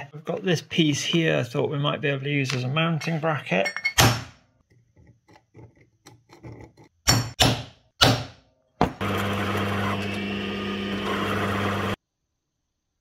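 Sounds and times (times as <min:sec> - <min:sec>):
electric motor humming: 0:09.0 - 0:12.0.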